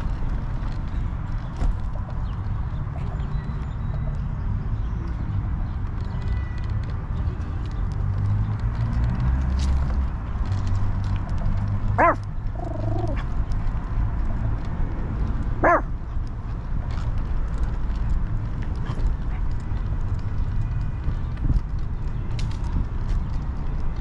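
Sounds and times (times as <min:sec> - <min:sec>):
wheels rolling on paved path: 0:00.0 - 0:24.0.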